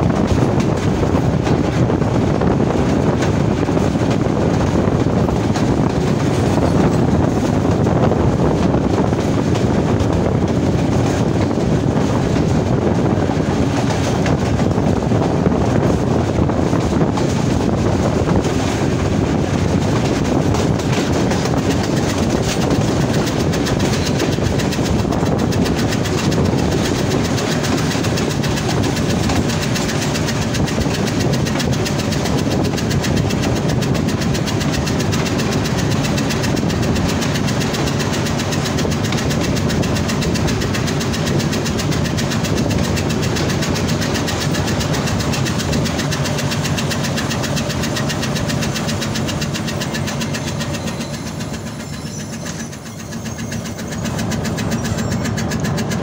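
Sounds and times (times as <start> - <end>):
locomotive engine running: 0.0 - 56.0.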